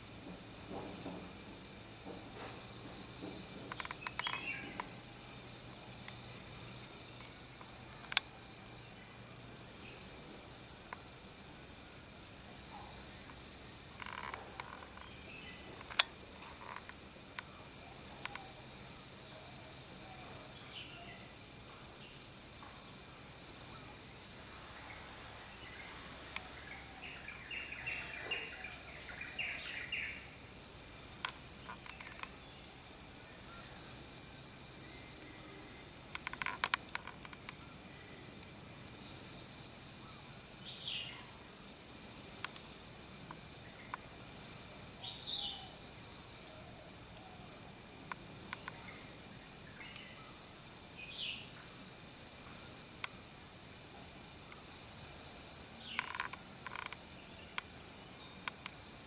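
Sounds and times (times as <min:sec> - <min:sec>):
high-pitched hiss: 0:00.0 - 0:59.0.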